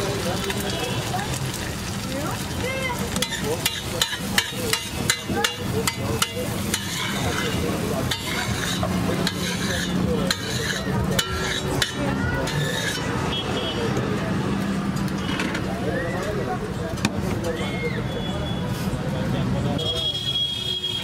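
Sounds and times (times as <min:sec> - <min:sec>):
metal spatula scraping griddle: 0:03.2 - 0:13.1.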